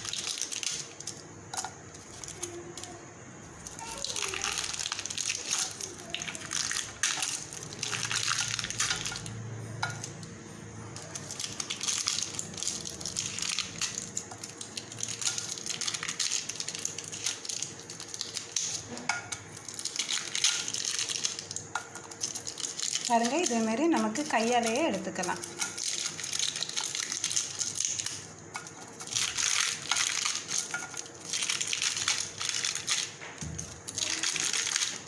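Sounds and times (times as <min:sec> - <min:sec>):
paper crinkling and rustling: 0:28.8 - 0:35.0.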